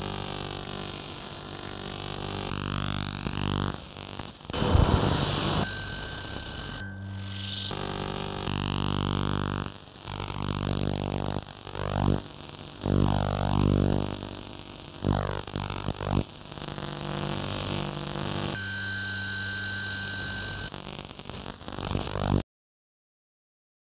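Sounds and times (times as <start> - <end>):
radio static buzzing drone: 0.0 - 22.4
swooping radio whistles: 4.6 - 7.7, 18.5 - 20.7
steady high whistle: 5.0 - 7.8, 18.6 - 20.7.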